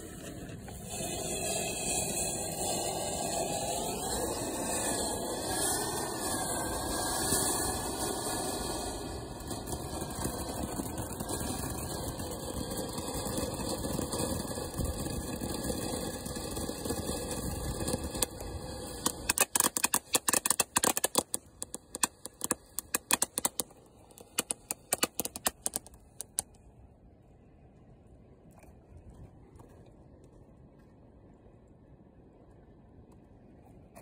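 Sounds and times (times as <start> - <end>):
firework fountain hissing: 0.0 - 26.5
firework crackling pops: 0.1 - 26.6.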